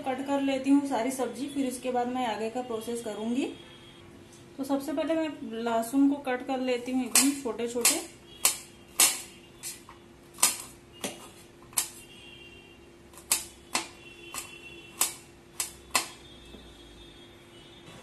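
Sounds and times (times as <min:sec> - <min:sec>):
knife chopping on a steel plate: 0:07.1 - 0:09.8, 0:13.2 - 0:16.2.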